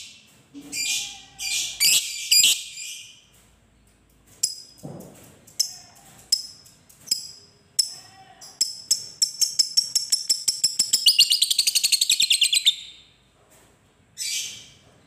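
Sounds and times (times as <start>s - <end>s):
bird chattering: 1.5s - 2.6s, 8.6s - 13.0s
sharp bird chirps: 1.8s - 3.1s, 8.6s - 13.0s.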